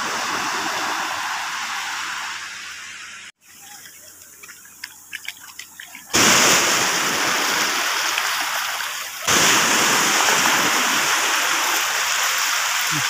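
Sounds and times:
small water drips: 3.4s - 6.2s
seawater sloshing: 3.4s - 12.8s
water splashing: 3.4s - 13.0s.

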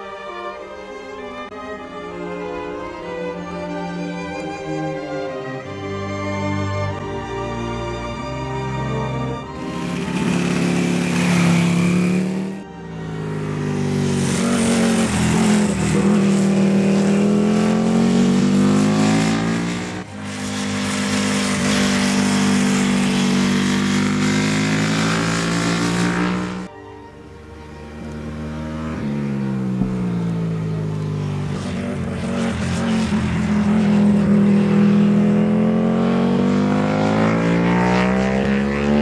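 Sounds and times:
race motorcycle engine at speed: 9.6s - 26.7s, 27.9s - 39.0s.

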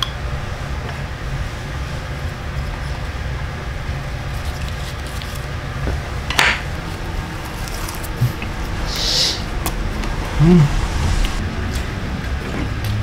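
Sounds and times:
low background rumble: 6.8s - 11.8s.

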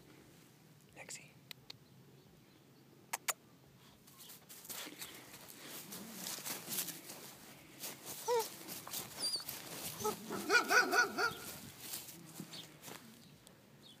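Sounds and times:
dry grass crunching and rustling: 4.2s - 13.3s
puppy whining and yipping: 8.2s - 11.5s.

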